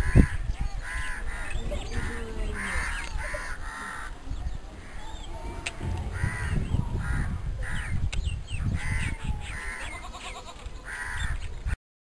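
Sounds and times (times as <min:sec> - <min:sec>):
crows cawing: 0:00.0 - 0:04.2, 0:04.8 - 0:08.0, 0:08.7 - 0:11.5
low rumble: 0:03.6 - 0:08.6.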